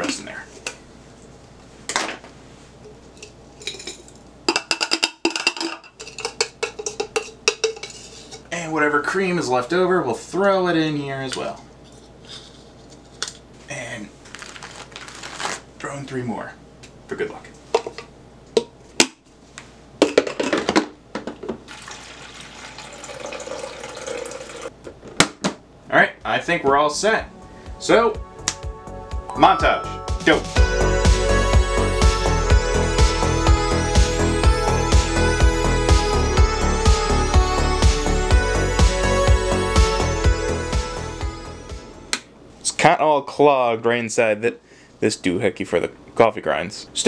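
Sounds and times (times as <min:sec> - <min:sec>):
water pouring into reservoir: 0:21.7 - 0:24.7.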